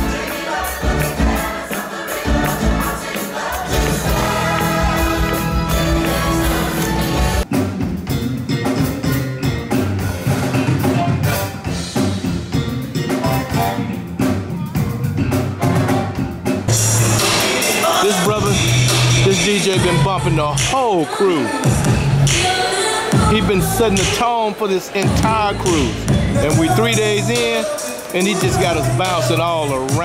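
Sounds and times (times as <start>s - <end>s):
cast singing over backing music: 0.0s - 7.4s, 17.1s - 30.0s
drum kit: 0.0s - 21.0s, 21.6s - 30.0s
keyboard: 0.0s - 30.0s
bass guitar: 3.7s - 17.4s, 18.3s - 20.7s, 25.1s - 27.4s.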